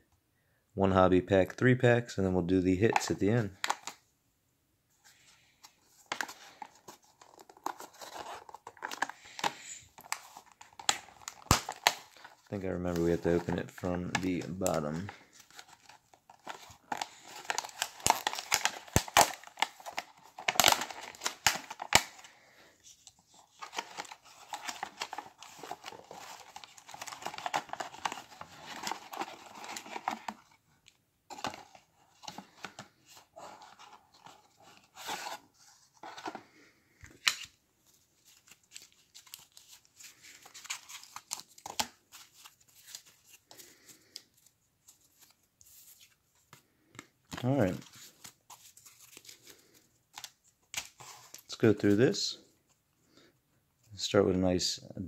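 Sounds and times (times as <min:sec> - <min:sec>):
trading cards rustling and tapping: 0:05.6 - 0:22.3, 0:23.0 - 0:30.5
plastic wrapping tearing and crinkling: 0:07.3 - 0:12.5, 0:13.2 - 0:22.2.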